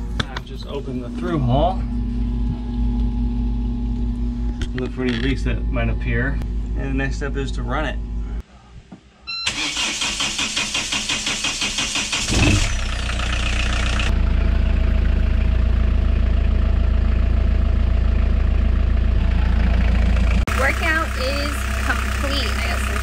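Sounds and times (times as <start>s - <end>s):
diesel engine starting and idling: 9.4s - 23.0s.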